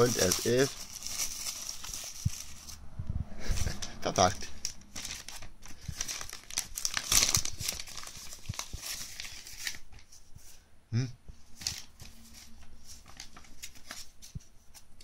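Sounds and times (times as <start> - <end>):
paper packaging rustling: 0.0 - 2.8, 3.4 - 10.6, 11.5 - 15.0.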